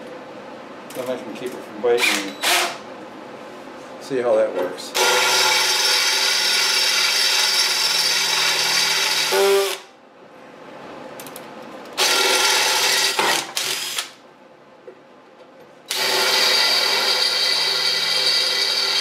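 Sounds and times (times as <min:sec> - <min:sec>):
drill whining through metal: 0:05.0 - 0:09.9, 0:12.0 - 0:14.1, 0:15.9 - 0:19.0.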